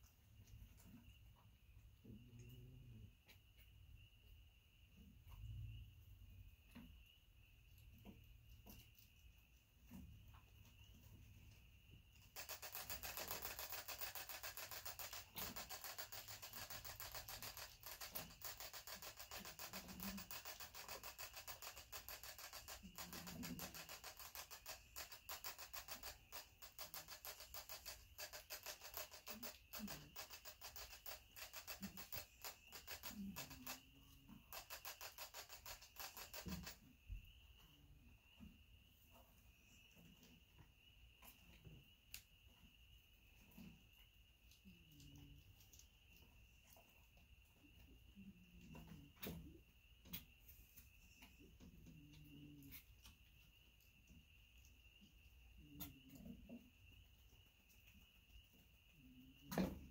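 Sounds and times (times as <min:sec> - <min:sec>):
rat scratching on bedding: 0:12.2 - 0:36.8.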